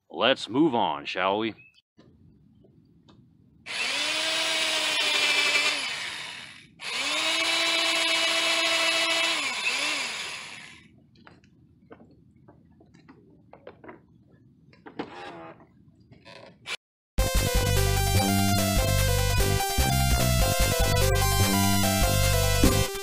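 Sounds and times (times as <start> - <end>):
angle grinder with wire wheel: 3.7 - 10.8.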